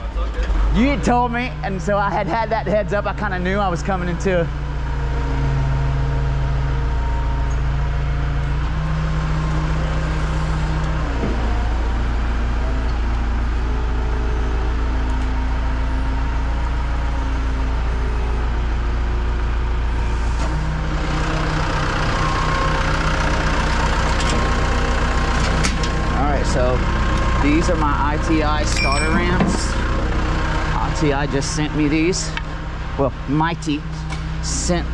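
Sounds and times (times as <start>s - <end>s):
diesel engine rumbling: 0.0s - 34.9s.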